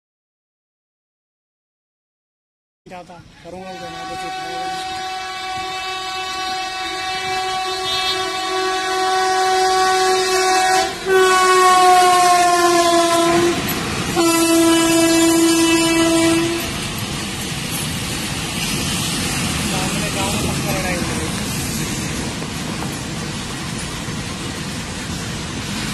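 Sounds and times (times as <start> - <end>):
coaches rushing past on rails: 3.2 - 25.9
locomotive air horn blasts: 3.6 - 16.8.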